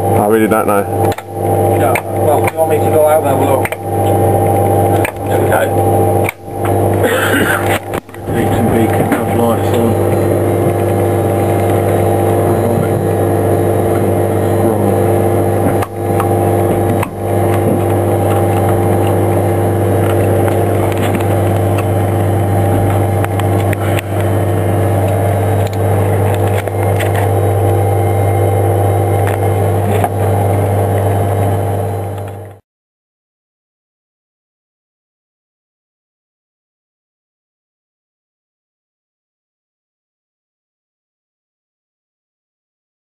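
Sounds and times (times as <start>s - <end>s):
electrical hum and whine: 0.0s - 32.6s.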